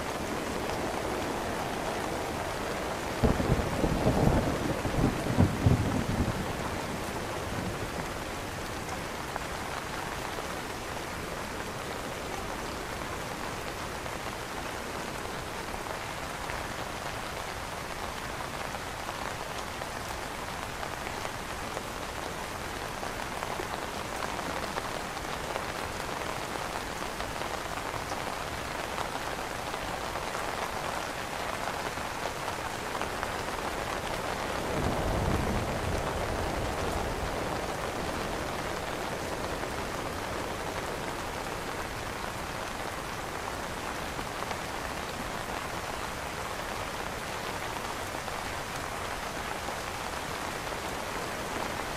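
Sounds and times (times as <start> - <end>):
rain pattering on an umbrella: 0.0 - 51.9
low thunder rumble: 3.2 - 7.1.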